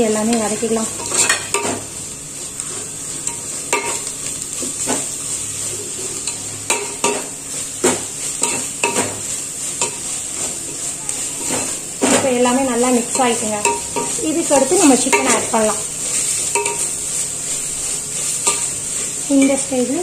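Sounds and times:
food sizzling in a pot: 0.0 - 20.0
metal spoon scraping a pot: 1.0 - 1.8.

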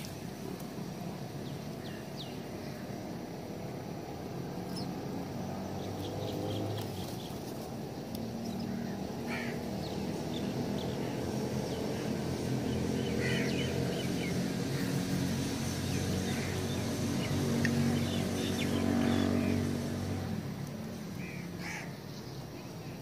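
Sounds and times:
low engine hum: 0.0 - 21.6.

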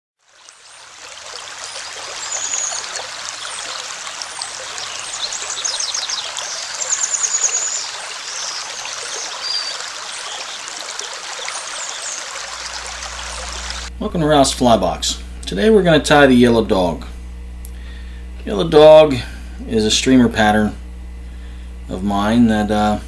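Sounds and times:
babbling stream: 0.2 - 13.9
high chirps and trills: 0.5 - 13.9.

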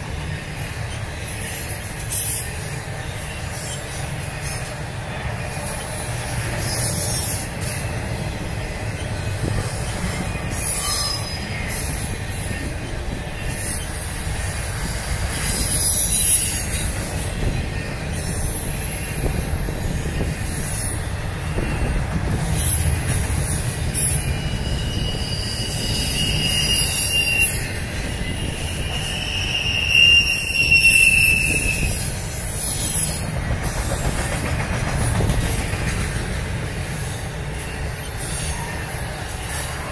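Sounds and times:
freight train wheels rumbling on rail: 0.0 - 39.9
high wheel squeals: 0.3 - 34.2, 36.9 - 39.9.

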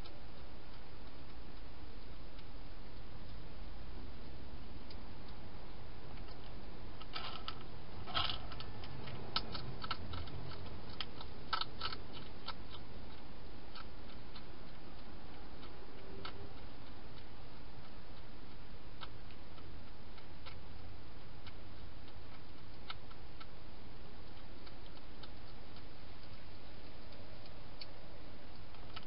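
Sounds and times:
steady background hiss: 0.0 - 29.0
hedgehog crunching dry food: 6.1 - 29.0.

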